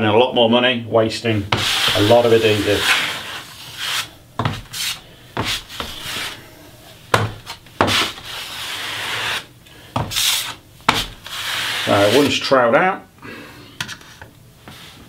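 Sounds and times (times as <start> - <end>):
trowel scraping adhesive on wood: 1.5 - 6.4, 7.4 - 12.3.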